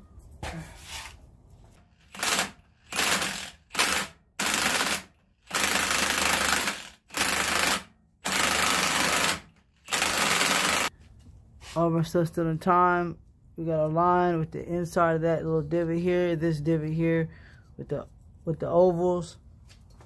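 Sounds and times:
impact wrench hammering: 0:02.1 - 0:10.9.

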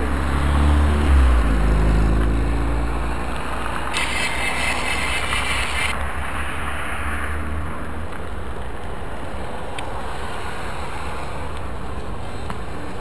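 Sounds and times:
car engine passing: 0:00.0 - 0:08.5
bicycle rolling on asphalt: 0:01.5 - 0:13.0.

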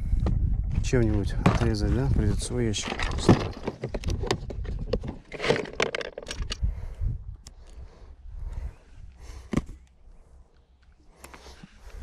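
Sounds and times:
wind rumble on microphone: 0:00.0 - 0:05.2, 0:06.3 - 0:09.5
tackle rattling in trays: 0:01.4 - 0:06.6.

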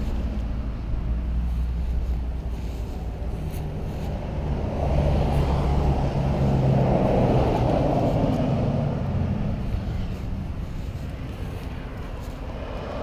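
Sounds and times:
pickup truck driving past: 0:03.7 - 0:11.9.

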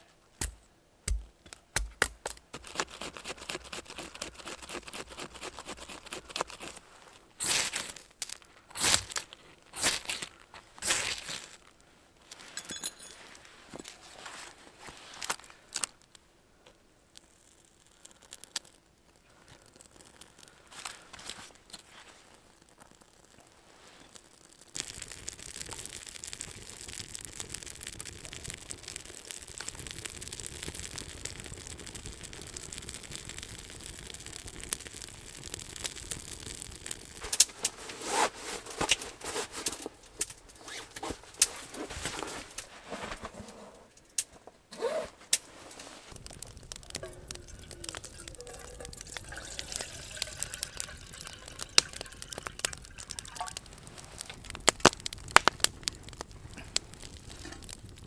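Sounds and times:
kindling fire crackling: 0:00.3 - 0:58.0
water poured into metal kettle: 0:46.9 - 0:53.6.

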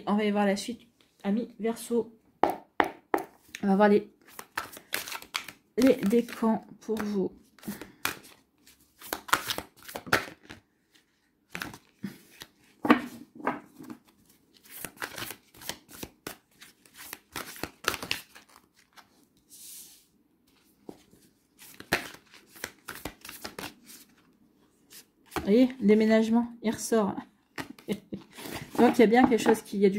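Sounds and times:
cards being shuffled by hand: 0:04.2 - 0:13.2, 0:13.8 - 0:24.3, 0:27.6 - 0:29.7.

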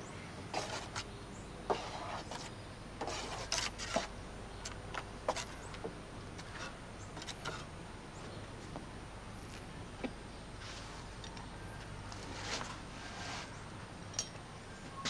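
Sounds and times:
trowel scraping and tapping: 0:01.7 - 0:05.8.

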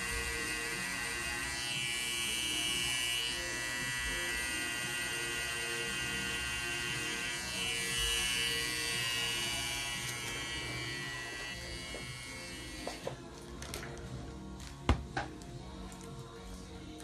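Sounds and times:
tattoo machine buzzing: 0:00.0 - 0:13.2.

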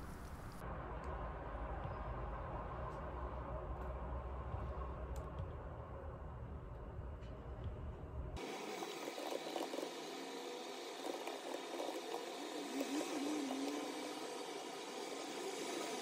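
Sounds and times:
steady rushing hiss: 0:08.4 - 0:16.0.

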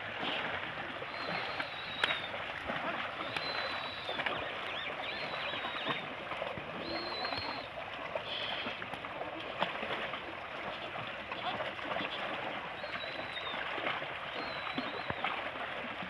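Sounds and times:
cattle splashing through water: 0:00.0 - 0:16.0
high bird calls: 0:03.2 - 0:06.0, 0:14.3 - 0:15.2.

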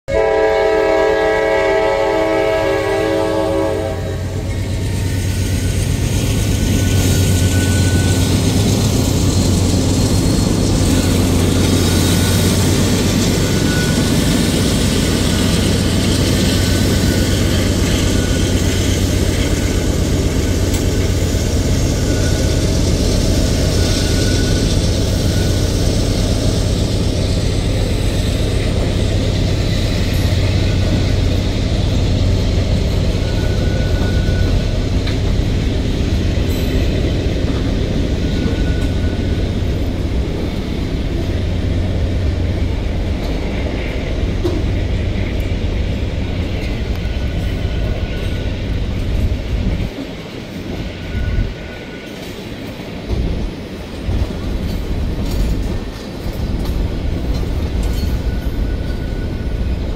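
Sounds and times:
locomotive air horn: 0:00.1 - 0:04.5
freight train rumbling past: 0:00.1 - 0:59.9.

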